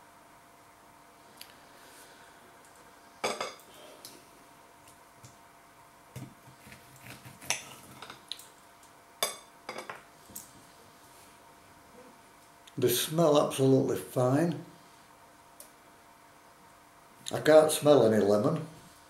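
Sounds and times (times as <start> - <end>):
cutlery clinking on a plate: 9.2 - 10.0.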